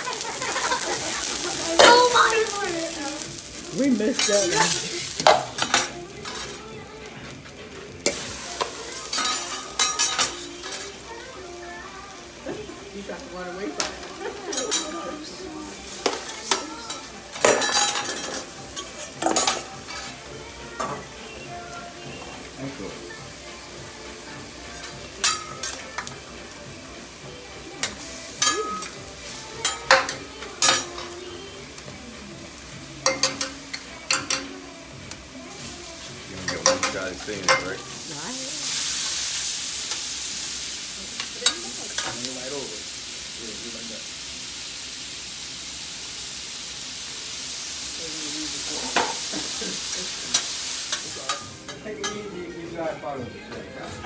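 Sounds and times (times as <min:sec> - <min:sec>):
egg sizzling on griddle: 0:00.0 - 0:52.9
metal spatula clacking on griddle: 0:25.2 - 0:26.1, 0:29.6 - 0:31.1, 0:33.0 - 0:34.6, 0:36.5 - 0:37.7.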